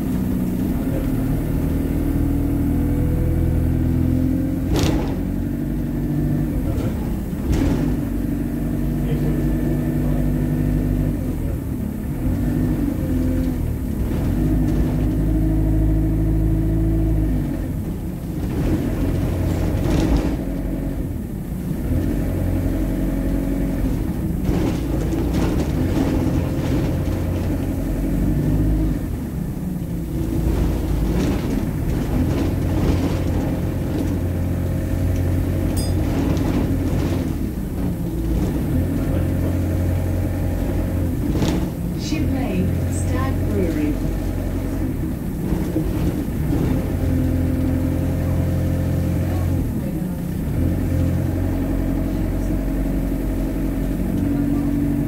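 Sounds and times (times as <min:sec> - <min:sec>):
bus engine: 0:00.0 - 0:55.0
bodywork knocks and rattles: 0:04.2 - 0:08.9, 0:18.4 - 0:20.9, 0:23.6 - 0:28.6, 0:30.0 - 0:42.0.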